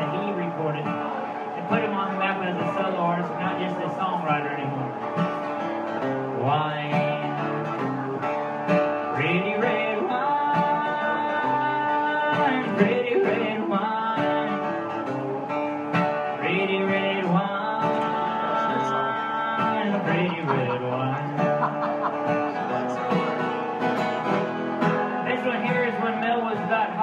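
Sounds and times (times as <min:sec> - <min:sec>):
strummed acoustic guitar: 0:00.0 - 0:27.0
man singing: 0:01.5 - 0:05.0, 0:06.4 - 0:08.0, 0:09.2 - 0:14.7, 0:16.4 - 0:21.7, 0:25.2 - 0:27.0.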